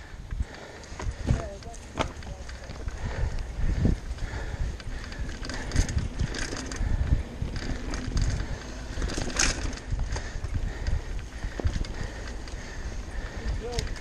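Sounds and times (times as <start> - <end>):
bike rattling and knocking: 0.3 - 14.0
bike tyres rumbling over dirt: 0.4 - 14.0.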